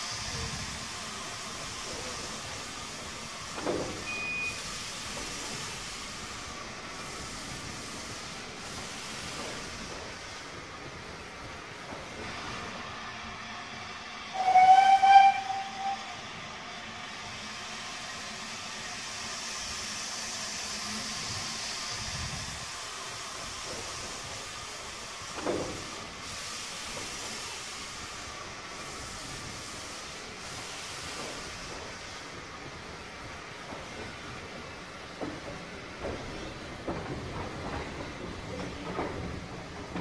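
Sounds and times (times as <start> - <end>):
steam hissing: 0.0 - 40.0
steam locomotive whistle: 14.3 - 16.2.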